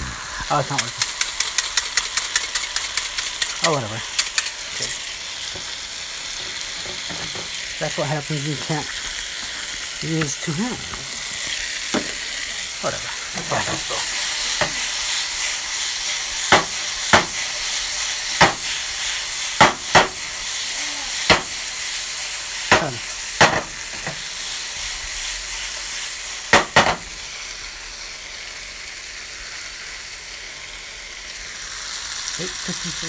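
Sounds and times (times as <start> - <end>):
steak sizzling in a frying pan: 0.0 - 33.0
sharp clicks: 0.8 - 4.6.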